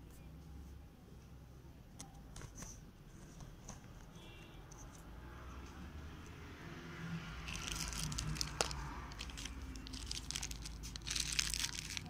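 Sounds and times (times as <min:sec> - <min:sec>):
packaging crinkling: 0:07.4 - 0:12.0.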